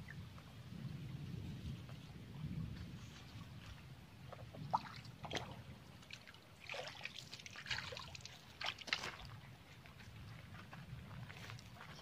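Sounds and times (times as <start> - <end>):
water splashing from wading: 3.2 - 9.4.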